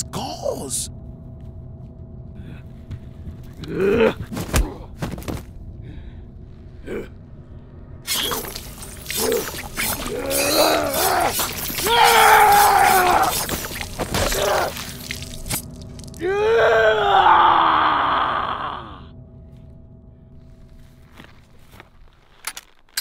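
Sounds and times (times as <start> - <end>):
fight hits and slashes: 8.1 - 15.7.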